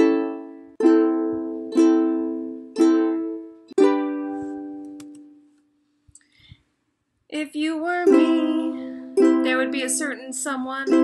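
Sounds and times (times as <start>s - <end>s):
ukulele strums: 0.0s - 5.6s, 8.0s - 11.0s.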